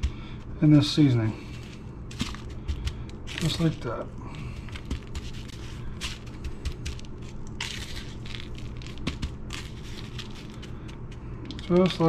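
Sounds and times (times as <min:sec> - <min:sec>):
gritty crunching and scraping: 0:00.0 - 0:12.0.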